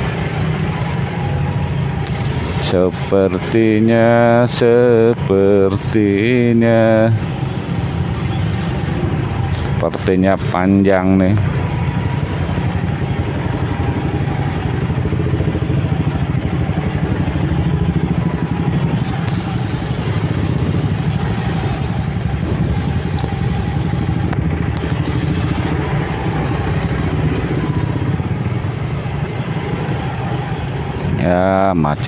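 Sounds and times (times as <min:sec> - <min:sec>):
hum of traffic: 0:00.0 - 0:32.0
motorcycle engine running slowly: 0:11.4 - 0:31.2.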